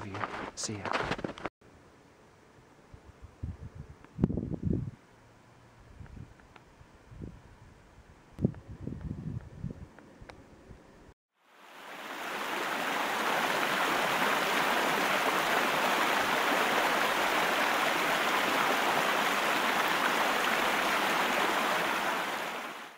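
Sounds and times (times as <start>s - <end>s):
waterfall rushing: 11.6s - 22.9s.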